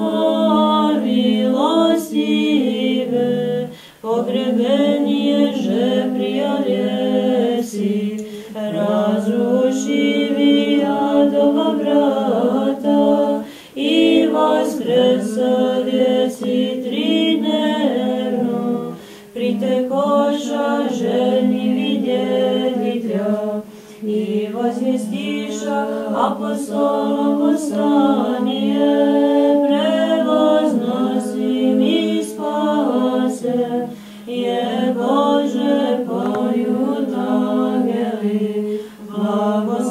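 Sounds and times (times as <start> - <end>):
women chanting a cappella: 0.0 - 39.9.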